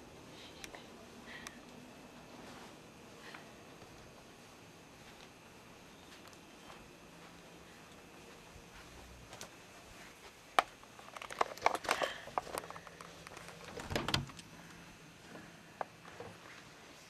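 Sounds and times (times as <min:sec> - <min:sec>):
footsteps: 0:02.1 - 0:10.8
door knob and latch rattling: 0:13.6 - 0:14.4.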